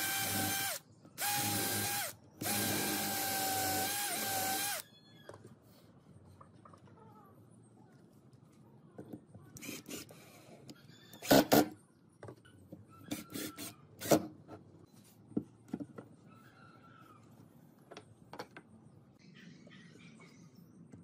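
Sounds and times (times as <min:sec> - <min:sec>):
cordless drill driving screws: 0:00.0 - 0:04.8.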